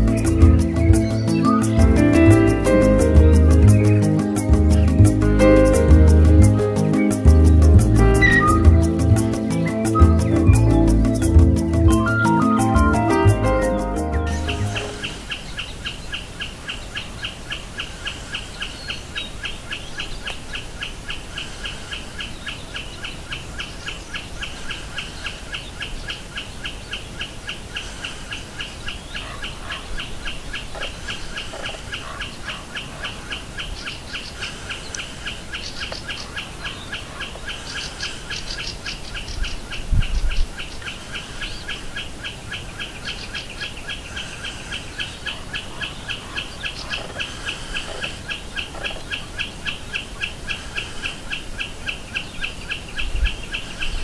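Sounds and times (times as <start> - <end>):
snipe ticking song: 0.0 - 17.6
faint higher birdsong: 0.0 - 54.0.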